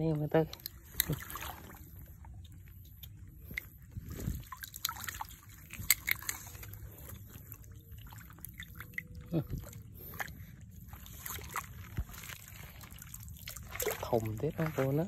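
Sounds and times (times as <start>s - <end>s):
muddy water sloshing: 0.0s - 15.0s
stick splashing in water: 0.6s - 1.8s, 4.4s - 6.8s, 10.9s - 15.0s.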